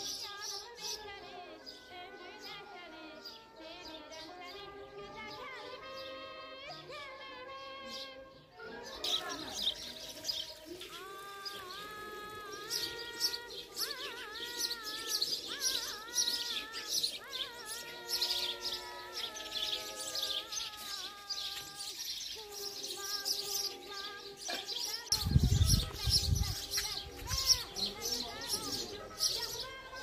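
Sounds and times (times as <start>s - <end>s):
soft melodic background music: 0.0s - 30.0s
small birds chirping: 7.9s - 30.0s.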